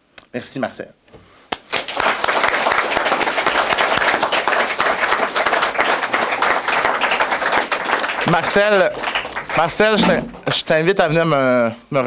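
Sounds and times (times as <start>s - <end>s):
audience applauding: 1.7s - 10.6s.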